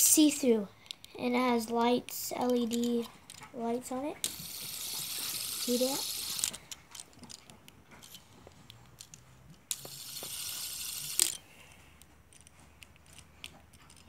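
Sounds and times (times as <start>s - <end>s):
fidget spinner clicks: 4.2s - 6.7s, 9.0s - 11.4s.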